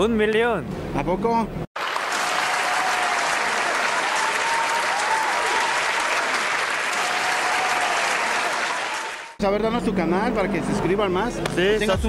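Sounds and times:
crowd applause: 0:01.8 - 0:09.4.

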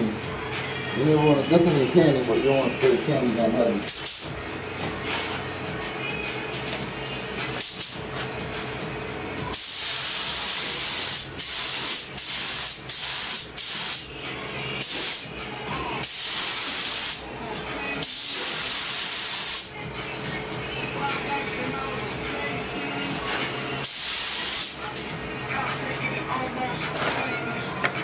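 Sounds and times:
paint spray gun hissing: 0:03.9 - 0:04.3, 0:07.6 - 0:08.0, 0:09.6 - 0:14.1, 0:14.8 - 0:15.3, 0:16.0 - 0:17.3, 0:18.0 - 0:19.7, 0:23.8 - 0:24.8.

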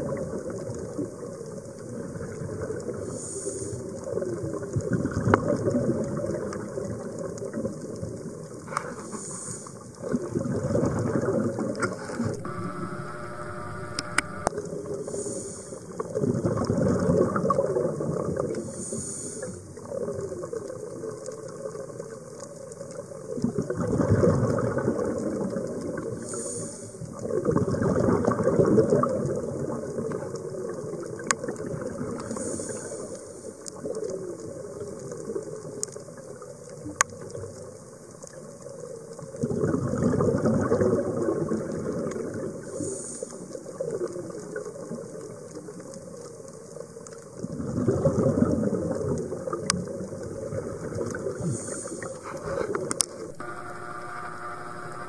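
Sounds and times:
regulator bubbles gurgling underwater: 0:00.0 - 0:55.0
sharp clicks: 0:11.8 - 0:14.5.

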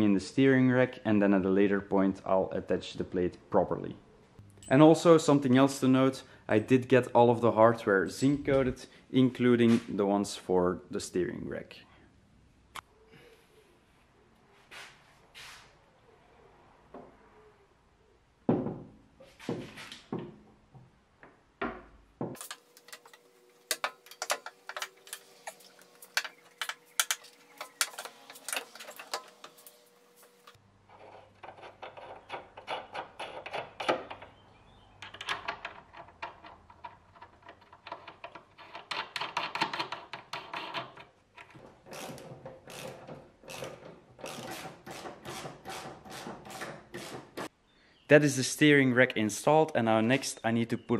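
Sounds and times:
ratchet clicking: 0:41.9 - 0:45.0.

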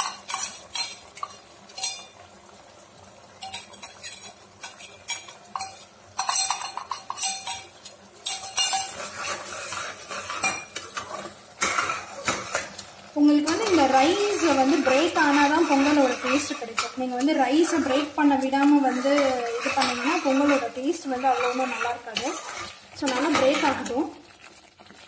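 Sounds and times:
ladle scraping a pot: 0:00.0 - 0:02.2, 0:03.4 - 0:25.0.

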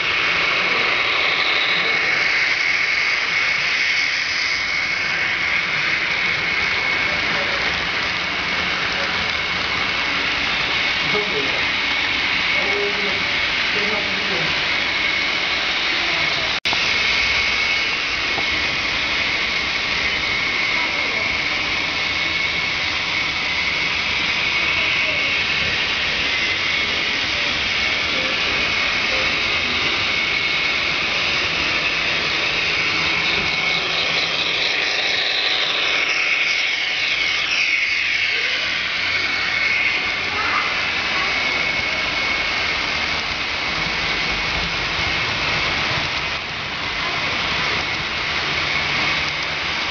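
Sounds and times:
model train passing close by: 0:00.0 - 0:49.9
model train wheels on rail: 0:00.0 - 0:49.9
motor whine: 0:00.0 - 0:49.9.

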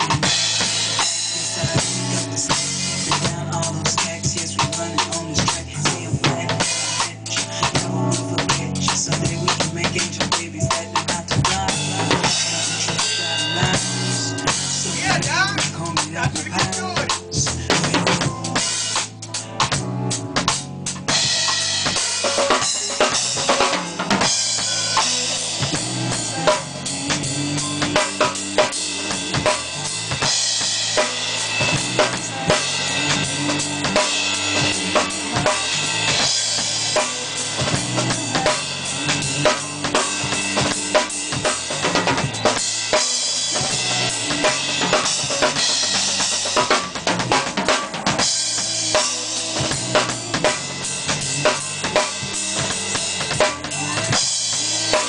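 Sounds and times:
drum kit fills: 0:00.0 - 0:55.0.

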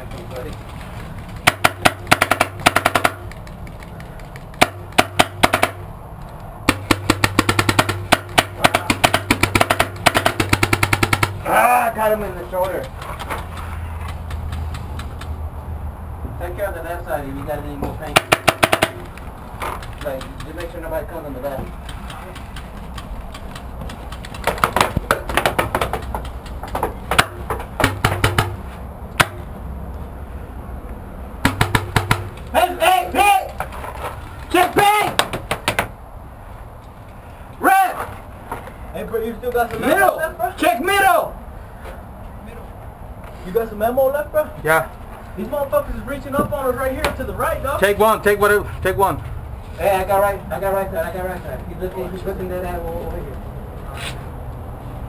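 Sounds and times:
paintball guns firing in bursts: 0:01.3 - 0:03.4, 0:04.5 - 0:05.9, 0:06.7 - 0:11.5, 0:18.1 - 0:19.1.

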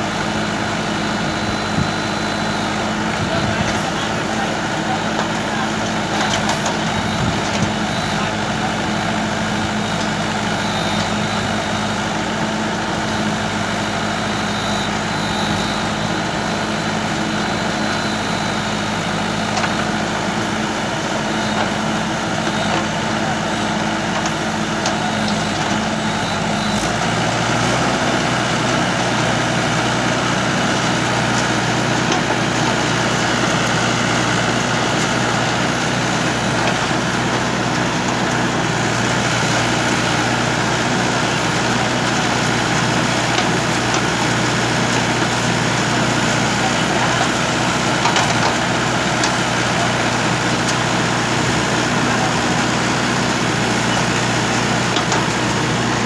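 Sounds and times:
backhoe digging soil: 0:00.0 - 0:56.0
tractor diesel engine running: 0:00.0 - 0:56.0.

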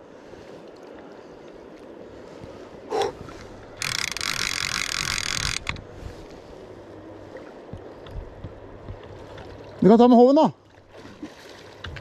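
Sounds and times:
fishing reel drag screaming: 0:03.8 - 0:05.7.

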